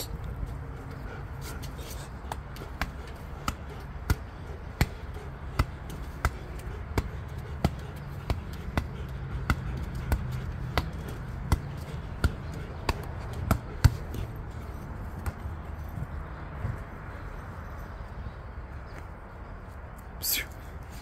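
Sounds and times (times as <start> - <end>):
ball bouncing: 2.2 - 15.9.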